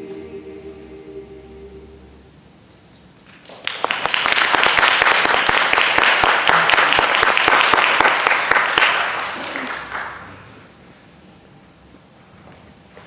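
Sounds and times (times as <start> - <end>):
choir holding chord: 0.0 - 2.4
audience applause: 3.4 - 10.4.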